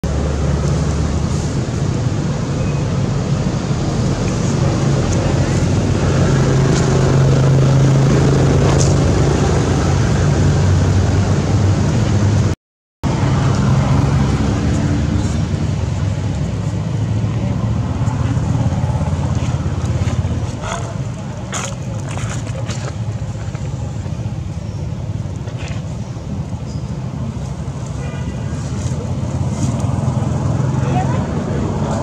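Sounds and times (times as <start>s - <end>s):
engine rumbling: 0.0s - 32.0s.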